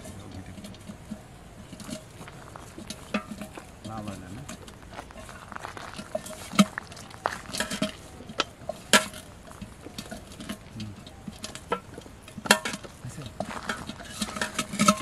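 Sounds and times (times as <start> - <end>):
hands squishing bait: 1.8 - 15.0.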